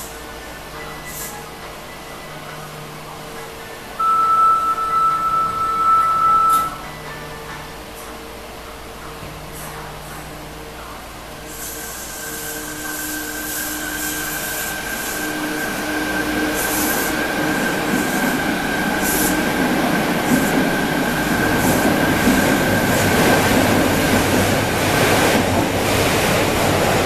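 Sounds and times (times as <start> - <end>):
train high whine: 0.0 - 27.0
train running noise: 0.0 - 27.0
high-pitched squeals: 4.0 - 7.1.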